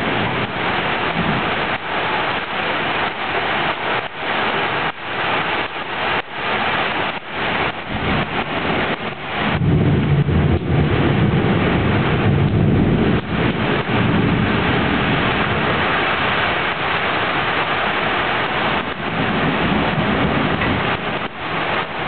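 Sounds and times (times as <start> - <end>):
heavy rain pouring: 0.0 - 22.0
low rumble of thunder: 7.6 - 16.5, 18.5 - 22.0.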